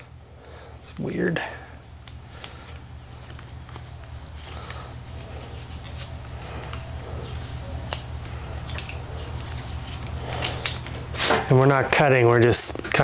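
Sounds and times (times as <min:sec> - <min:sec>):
steady low hum: 0:00.0 - 0:13.0
blade scraping tape: 0:02.4 - 0:11.4.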